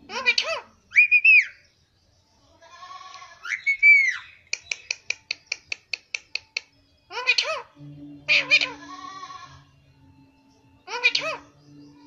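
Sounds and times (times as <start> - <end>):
parakeet squawking and chirping: 0.0 - 1.6, 3.3 - 5.6, 7.1 - 9.6, 10.8 - 12.0.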